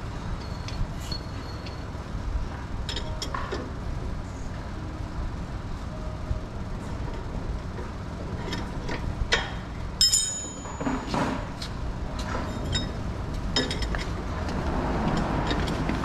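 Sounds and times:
steady low rumble: 0.0s - 10.8s, 11.5s - 16.0s
metal tools clinking: 9.3s - 11.2s.

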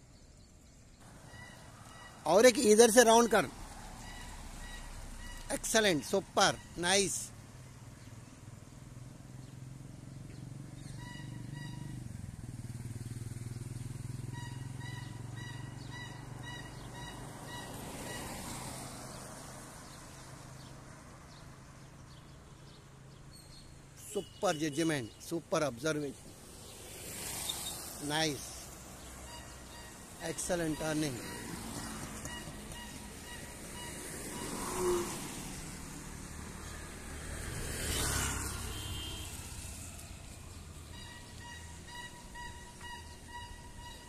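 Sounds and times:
traffic engine hum: 0.0s - 44.0s
motor scooter passing: 7.5s - 20.7s, 26.4s - 30.2s, 31.1s - 44.0s.

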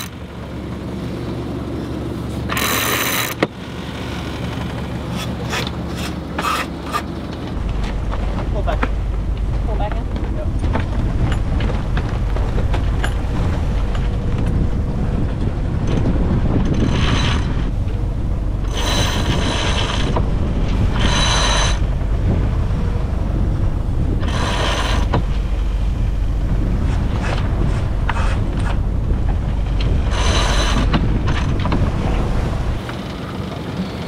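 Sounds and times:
winch ratcheting: 2.5s - 3.4s, 4.4s - 18.0s, 18.6s - 22.0s, 26.8s - 32.9s
wind rushing on microphone: 7.1s - 34.0s.

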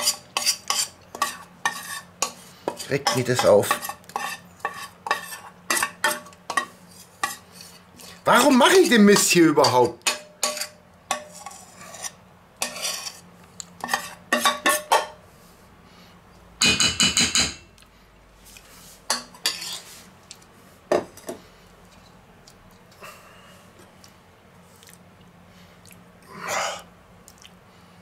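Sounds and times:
metal spoon scraping steel bowl: 0.0s - 7.8s, 10.4s - 13.2s, 13.8s - 14.9s, 19.1s - 19.9s.

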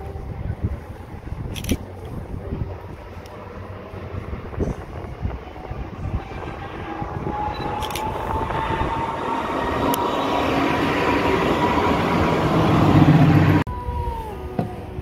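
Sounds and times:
tram whine: 0.0s - 15.0s
wheels rumbling on rails: 0.0s - 15.0s.

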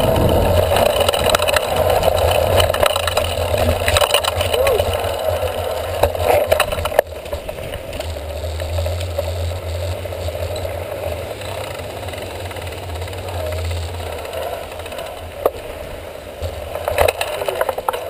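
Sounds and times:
bike rattling on concrete: 0.0s - 18.0s.

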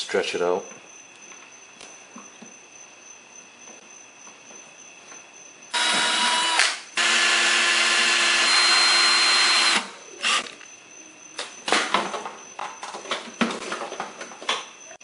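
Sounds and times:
cordless power driver running: 5.8s - 10.5s.

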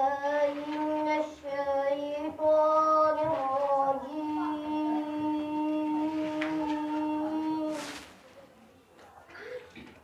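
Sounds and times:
boy chanting long note: 0.0s - 7.9s.

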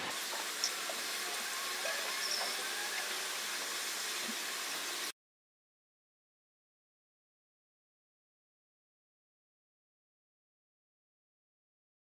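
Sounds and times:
fast-forwarded ambience hiss: 0.0s - 5.1s.

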